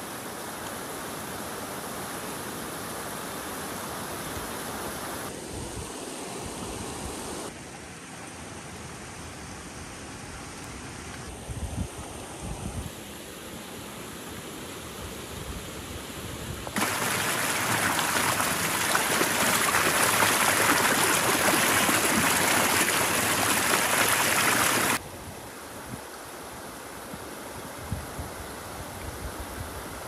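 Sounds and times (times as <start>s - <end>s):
rushing water-like noise: 0.0s - 11.0s, 16.7s - 27.6s.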